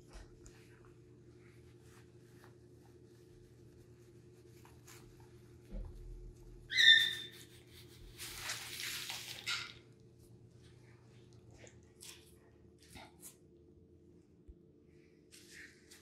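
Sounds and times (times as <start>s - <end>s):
macaw squawking: 6.7s - 7.4s.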